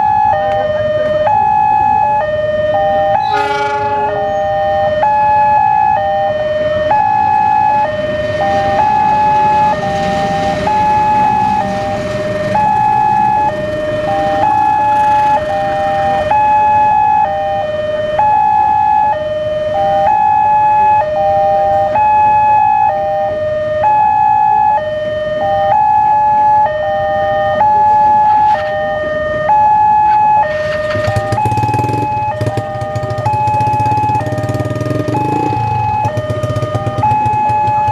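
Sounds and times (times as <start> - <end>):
level crossing alarm tones: 0.0 - 37.9
passing train rumbling: 3.0 - 5.6, 6.4 - 16.9, 27.4 - 37.9.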